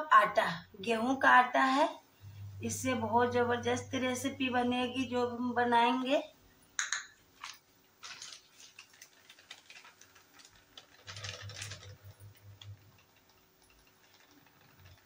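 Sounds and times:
ghee crackling in frying pan: 0:06.7 - 0:15.0.

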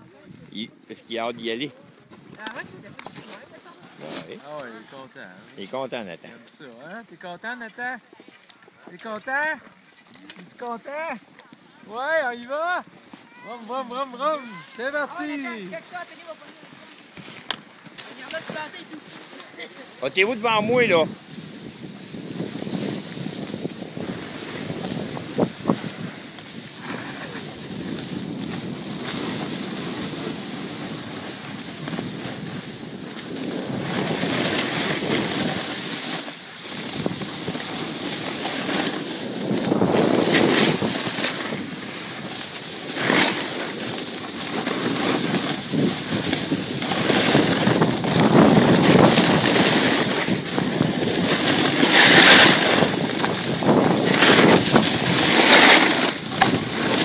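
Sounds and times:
skis scraping on snow: 0:00.0 - 0:57.0
wind rushing over microphone: 0:19.9 - 0:57.0.

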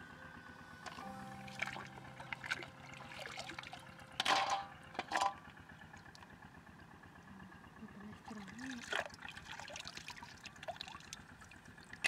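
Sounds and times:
shallow water splashing: 0:01.5 - 0:06.2, 0:08.2 - 0:12.0.

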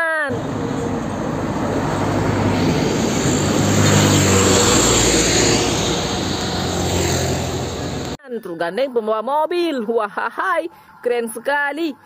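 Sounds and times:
truck driving past: 0:00.3 - 0:08.2.

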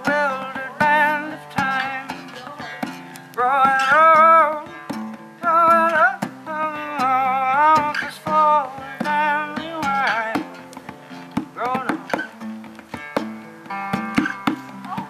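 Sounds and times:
man singing long held notes: 0:00.0 - 0:04.8
acoustic guitar strummed: 0:00.0 - 0:15.0
hand drum: 0:00.0 - 0:15.0.

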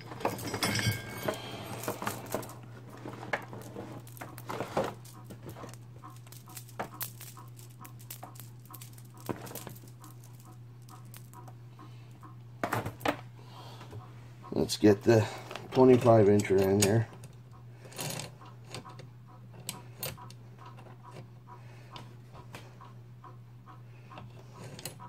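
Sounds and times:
chainsaw chains clinking: 0:00.0 - 0:02.7
steady low hum: 0:00.0 - 0:24.6.

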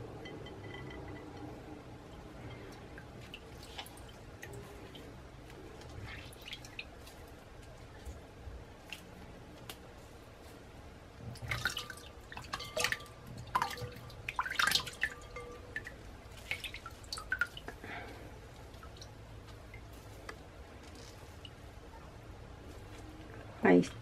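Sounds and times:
water dripping into a bowl: 0:00.0 - 0:08.2, 0:11.3 - 0:20.4.

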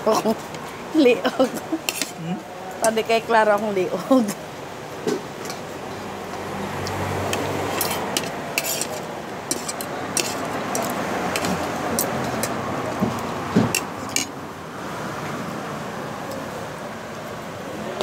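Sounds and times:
cutlery clinking on plates: 0:01.8 - 0:02.2, 0:07.7 - 0:14.3.

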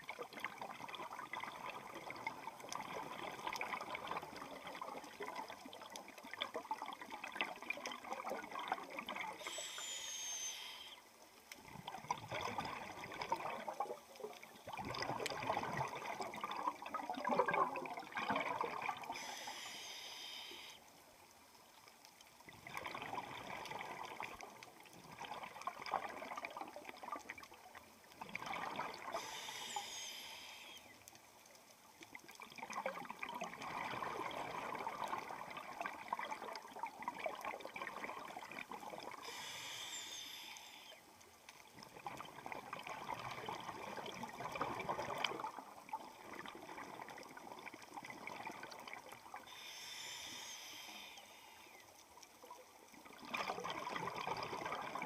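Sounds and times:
hissing regulator inhales: 0:09.4 - 0:11.0, 0:19.1 - 0:20.8, 0:29.1 - 0:31.0, 0:39.2 - 0:41.0, 0:49.5 - 0:51.8
bubbling exhales underwater: 0:14.7 - 0:19.2, 0:53.0 - 0:55.0.

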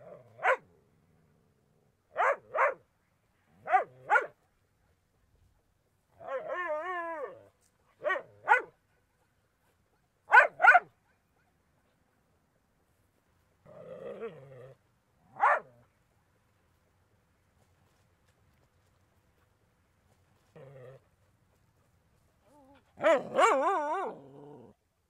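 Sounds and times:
small dog barking: 0:00.4 - 0:00.7, 0:02.1 - 0:02.8, 0:03.6 - 0:04.4, 0:08.0 - 0:08.8, 0:10.3 - 0:11.2, 0:15.3 - 0:15.8, 0:23.0 - 0:24.2.

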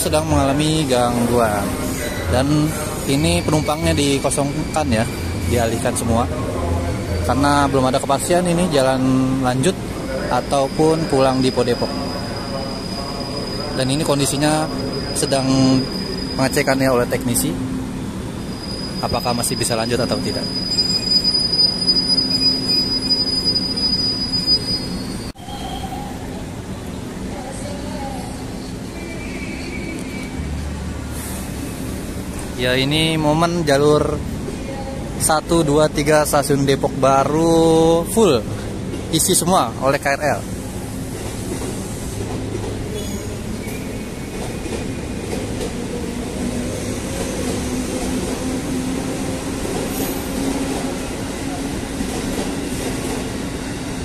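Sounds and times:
rail rumble: 0:00.0 - 0:54.0
train wheel squeal: 0:01.1 - 0:06.4, 0:09.9 - 0:17.5, 0:18.3 - 0:26.5, 0:28.1 - 0:31.8, 0:41.2 - 0:54.0.

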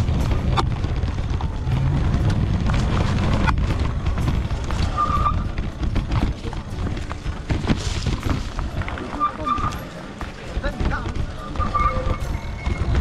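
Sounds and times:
bike clicks and rattles: 0:00.0 - 0:13.0
wind and trail rumble: 0:00.0 - 0:13.0
high squeak: 0:11.4 - 0:13.0.

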